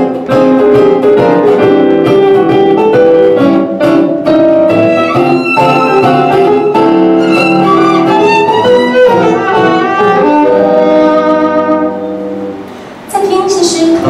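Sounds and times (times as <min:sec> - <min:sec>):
bowed violin melody: 0:04.7 - 0:12.3.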